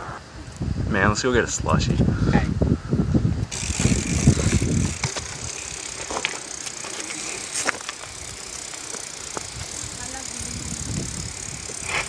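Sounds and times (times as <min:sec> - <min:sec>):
wind on microphone: 0:00.0 - 0:06.2, 0:09.3 - 0:12.0
bicycles rolling on asphalt: 0:00.0 - 0:12.0.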